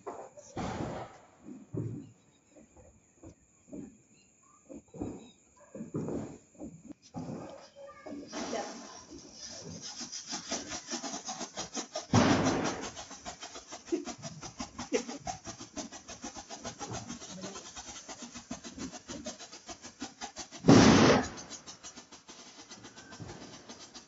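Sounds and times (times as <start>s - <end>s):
firecracker burst: 0.0s - 1.7s, 7.2s - 24.0s
firecracker fizzing and crackling: 0.0s - 2.0s, 4.7s - 24.0s.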